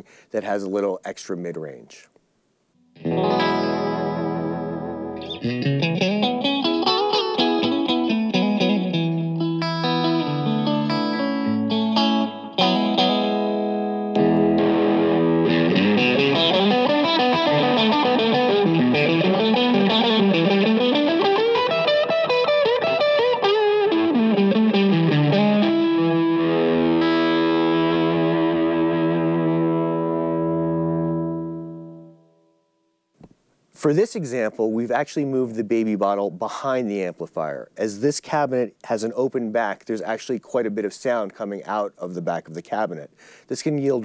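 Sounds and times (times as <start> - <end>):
electric guitar through amp: 3.0 - 32.3.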